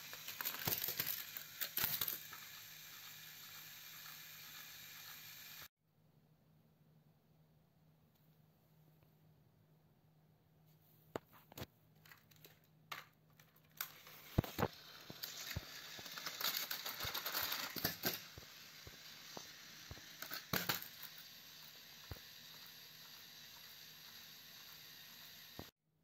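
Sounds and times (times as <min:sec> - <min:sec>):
plastic toy trains clicking: 0:00.0 - 0:05.7, 0:12.0 - 0:25.7.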